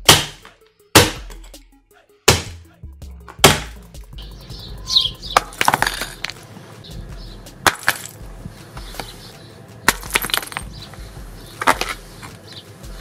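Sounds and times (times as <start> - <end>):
ice block smashing on asphalt: 5.4 - 6.4, 7.6 - 8.2, 9.9 - 10.7
ice chunks skittering and clinking: 7.7 - 8.2.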